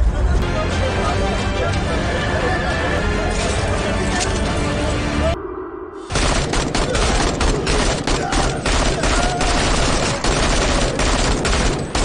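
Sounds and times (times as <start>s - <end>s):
automatic rifle fire: 6.1s - 12.0s.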